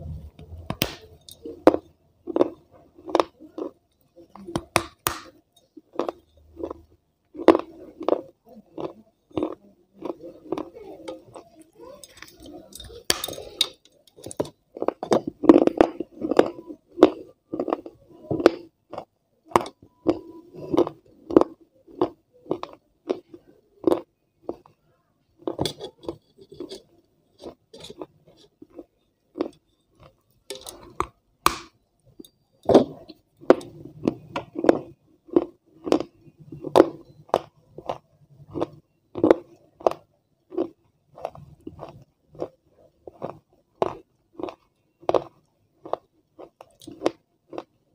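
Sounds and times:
crisp food crunching: 0.7 - 3.8, 4.8 - 24.8, 33.4 - 47.8.

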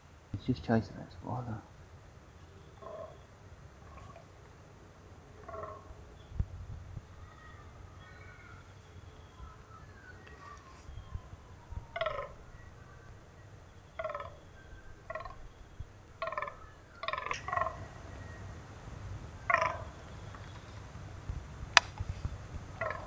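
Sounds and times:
short animal calls: 2.5 - 4.4, 5.3 - 6.1, 10.3 - 13.1, 13.8 - 18.1, 19.4 - 20.0, 22.8 - 23.0.

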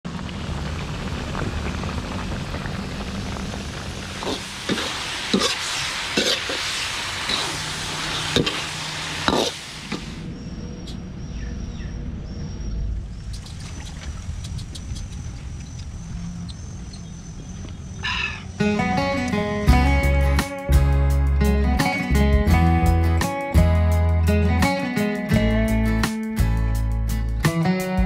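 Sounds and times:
oil sizzling in wok: 0.1 - 10.2.

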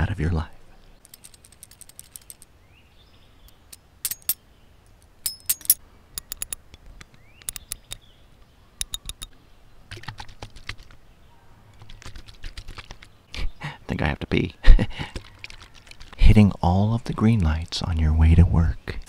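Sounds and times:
small metal objects clinking: 1.0 - 2.5, 4.0 - 4.4, 5.2 - 6.6, 8.8 - 9.3.

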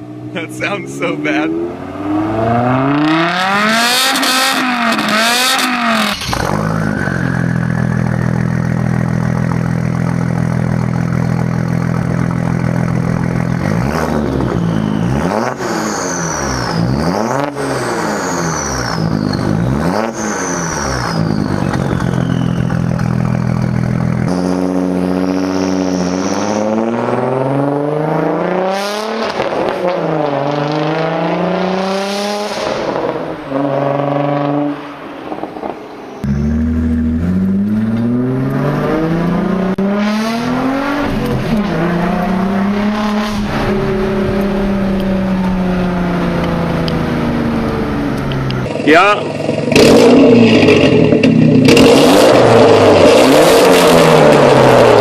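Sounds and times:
car engine idling drone: 0.0 - 29.1, 34.8 - 55.0
car engine revving hard: 0.2 - 55.0
high whistle after engine blips: 14.2 - 17.0, 18.1 - 27.1, 36.2 - 37.2.

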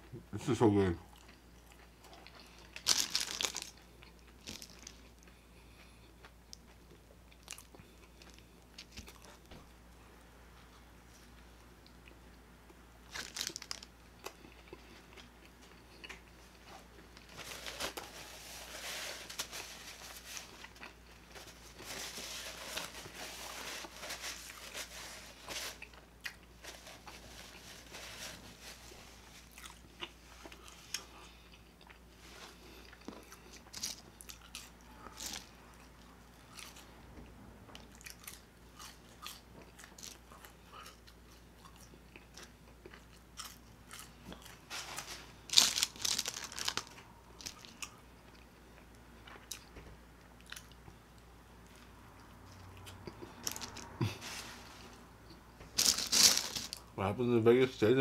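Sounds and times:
biting and chewing food: 1.1 - 9.6, 11.2 - 18.6, 29.2 - 37.0, 37.7 - 51.0.

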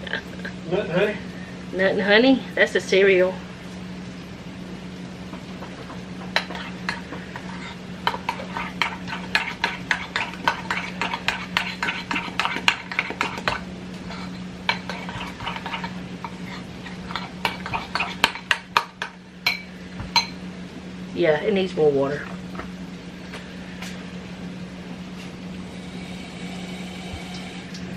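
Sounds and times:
steady low hum: 0.0 - 27.9
spoon scraping pot: 5.6 - 19.6.

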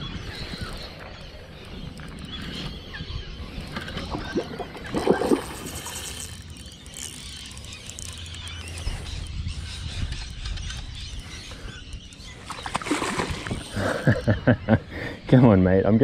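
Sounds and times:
low wind rumble: 0.0 - 15.3
faint bird chirps: 0.0 - 16.0
fish splashing at water surface: 12.6 - 13.8.

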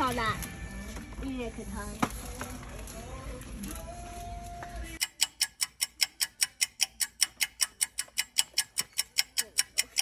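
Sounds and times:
store background sound: 0.0 - 10.0
fast clock ticking: 5.0 - 10.0.

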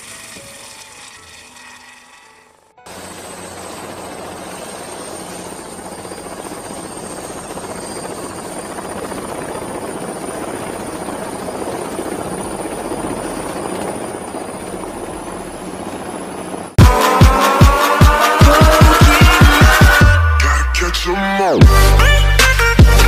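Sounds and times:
helicopter rotor chop: 2.8 - 20.2
high-pitched helicopter whine: 2.8 - 20.4.

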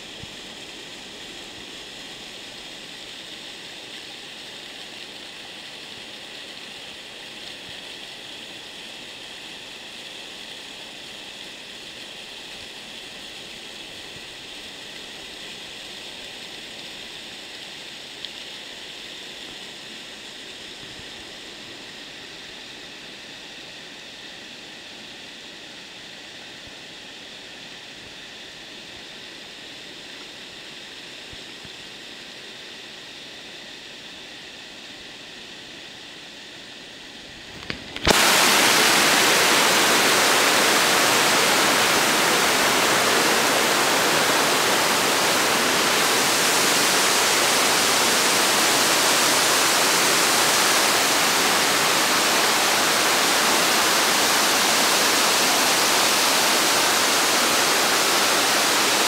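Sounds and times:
small waterfall splashing on rock: 37.4 - 59.0.

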